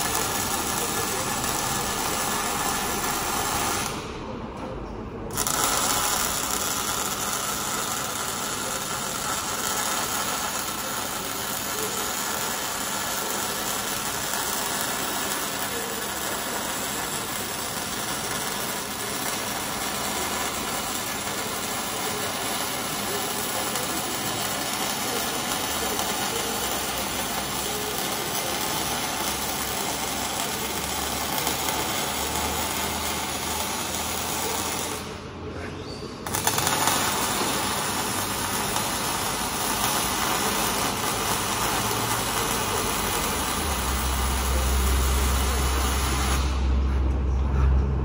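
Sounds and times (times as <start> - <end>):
welding arc crackling hiss: 0.0 - 4.3, 5.3 - 35.3, 36.2 - 46.8
low hum: 46.6 - 48.0.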